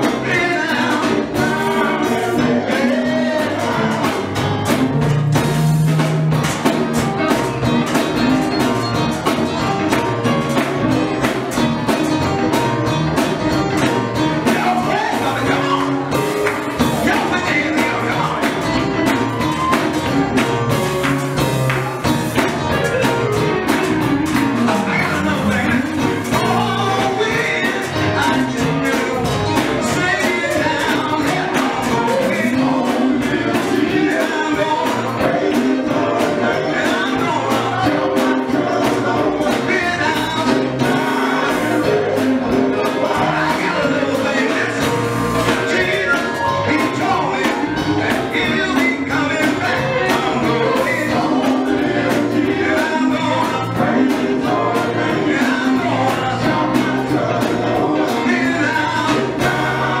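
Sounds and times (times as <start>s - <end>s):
man singing lead: 0.0s - 4.8s, 13.8s - 20.5s, 22.6s - 60.0s
band with drums: 0.0s - 60.0s
group singing harmony: 0.0s - 60.0s.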